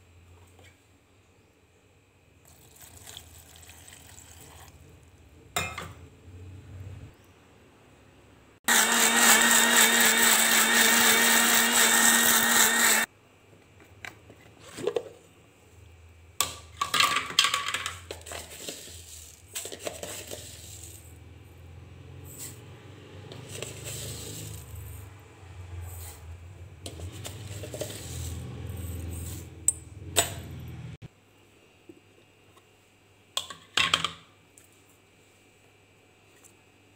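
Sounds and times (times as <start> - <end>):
mixer grinder running: 8.7 - 13.1, 21.8 - 25.9, 26.8 - 31.0.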